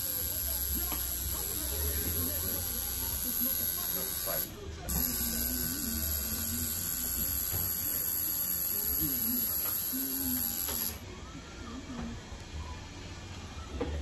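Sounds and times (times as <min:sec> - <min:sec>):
tattoo machine whining: 0:00.0 - 0:11.0.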